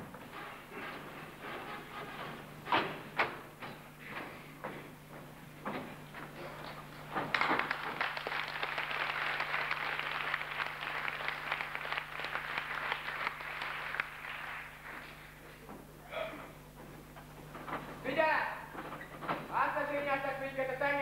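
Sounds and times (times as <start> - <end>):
steady low hum: 0.0 - 21.0
audience applauding: 6.6 - 15.4.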